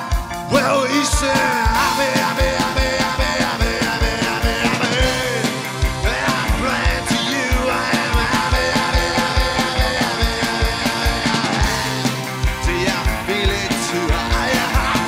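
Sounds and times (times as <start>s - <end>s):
rock song with vocals: 0.0s - 15.0s
steady drum beat: 0.0s - 15.0s.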